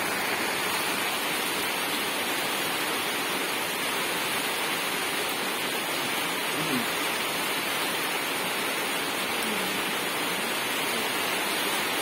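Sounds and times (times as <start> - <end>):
steady rushing hiss: 0.0 - 12.0.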